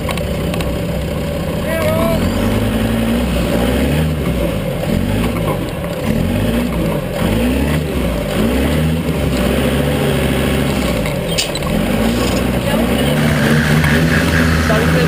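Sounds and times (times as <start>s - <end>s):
vehicle engine revving: 0.0s - 15.0s
sharp click: 11.3s - 12.5s.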